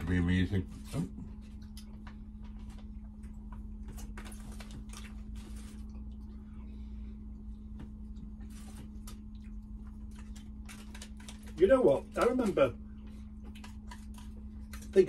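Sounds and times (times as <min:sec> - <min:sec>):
steady low hum: 0:00.0 - 0:15.0
paper and foil wrappers rustling: 0:04.0 - 0:06.0, 0:08.4 - 0:15.0.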